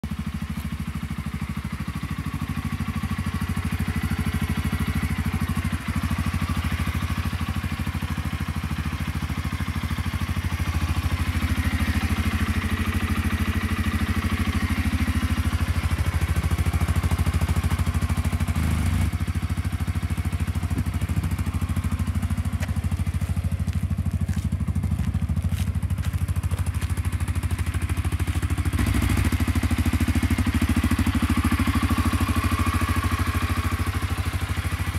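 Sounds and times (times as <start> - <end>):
engine idling: 0.0 - 34.9.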